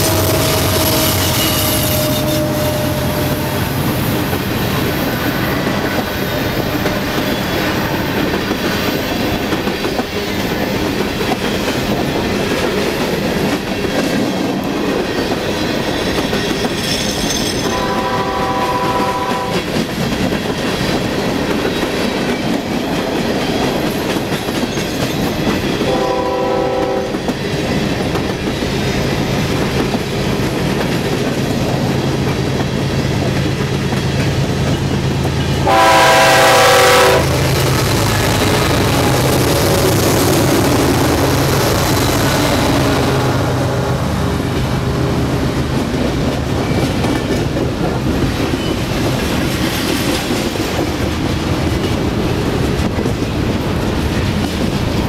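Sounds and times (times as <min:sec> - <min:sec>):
locomotive horn: 0:00.0 - 0:04.0, 0:17.6 - 0:19.7, 0:25.9 - 0:27.2, 0:35.6 - 0:37.4
train wheels clacking over rail joints: 0:00.0 - 0:43.1, 0:44.4 - 0:55.0
diesel locomotive engines droning: 0:00.0 - 0:55.0.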